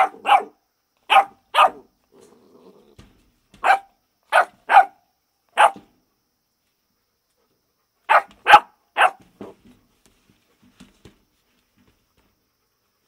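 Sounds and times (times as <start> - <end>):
puppy barking: 0.0 - 1.9, 3.6 - 5.0, 5.6 - 5.8, 8.1 - 9.3.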